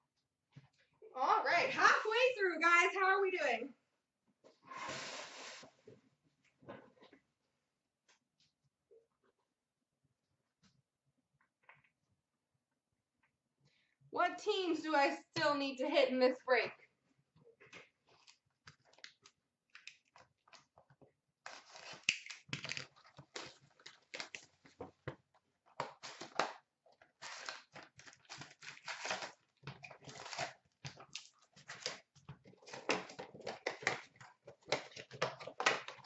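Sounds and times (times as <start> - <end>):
wrapping crinkling and tearing: 21.4 - 24.8, 25.6 - 36.0.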